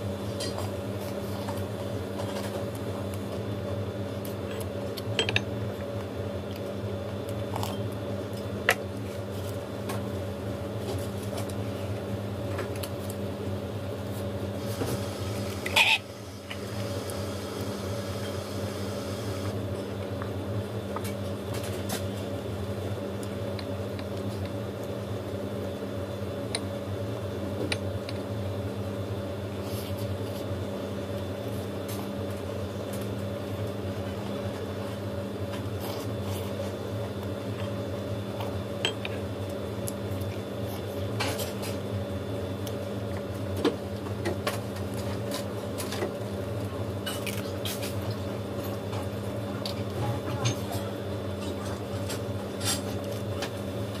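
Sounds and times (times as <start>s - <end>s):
steady electrical hum: 0.0s - 54.0s.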